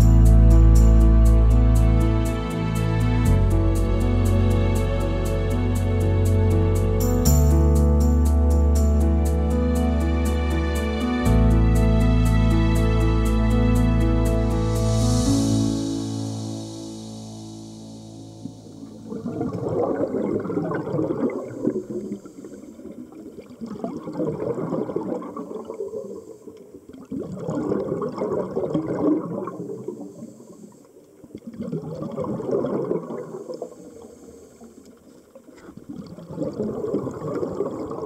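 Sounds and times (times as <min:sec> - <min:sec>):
underwater bubbling bursts: 0:18.4 - 0:38.0.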